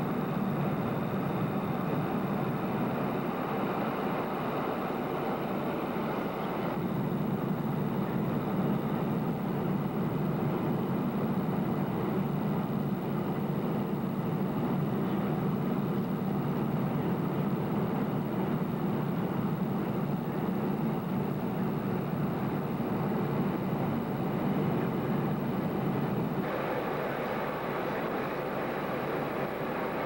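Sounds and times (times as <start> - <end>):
airliner cabin rumble: 0.0 - 30.0.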